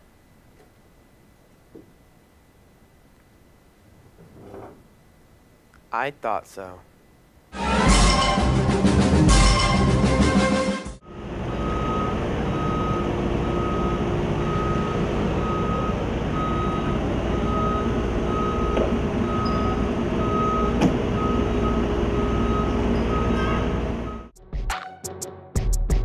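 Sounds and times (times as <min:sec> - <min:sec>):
vehicle reversing alarm beeping: 0:11.0 - 0:24.3
low engine rumble: 0:11.0 - 0:24.4.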